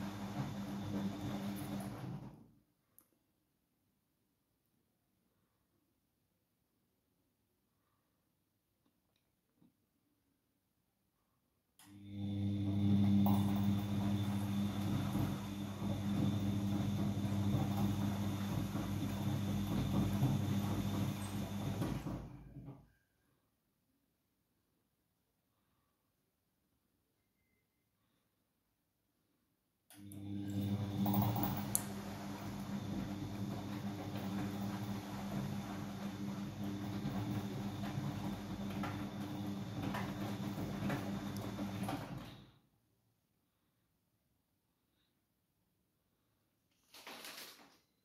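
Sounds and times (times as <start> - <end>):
drum tumbling wet laundry: 0.0 - 2.6, 12.2 - 22.8, 30.2 - 42.5
washing machine motor hum: 0.0 - 2.6, 11.8 - 22.8, 30.0 - 42.6
laundry tumbling in drum: 13.6 - 22.7.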